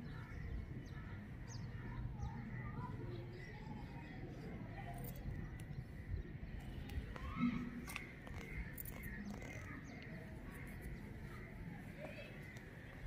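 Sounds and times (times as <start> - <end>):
faint small clicks and rustles: 7.8 - 11.0.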